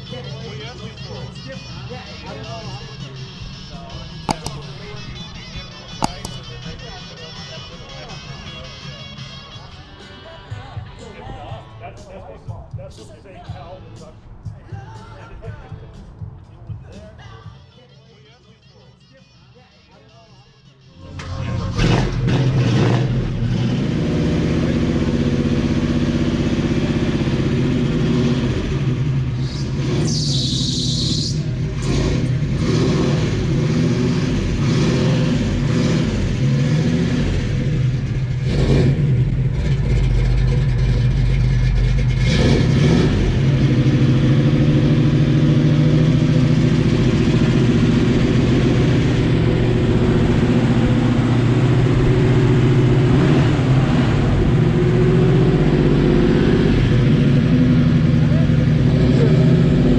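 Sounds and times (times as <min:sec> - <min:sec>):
vee eight engine low exhaust note: 0:02.4 - 0:08.1, 0:21.0 - 0:30.1, 0:30.7 - 0:59.9
engine throttle blips: 0:02.8 - 0:07.2, 0:21.0 - 0:59.9.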